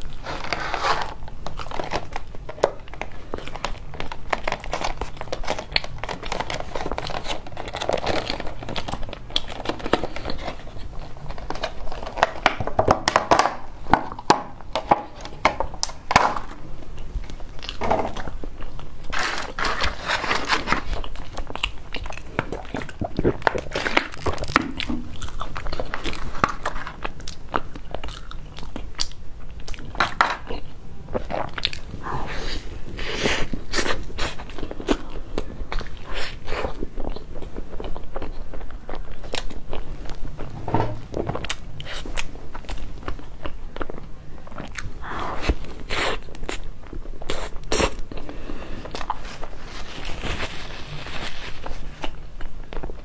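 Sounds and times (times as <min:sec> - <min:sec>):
plastic packaging crinkling: 0:00.0 - 0:16.6, 0:17.2 - 0:28.9, 0:49.0 - 0:53.0
biting and chewing pastry: 0:00.0 - 0:53.0.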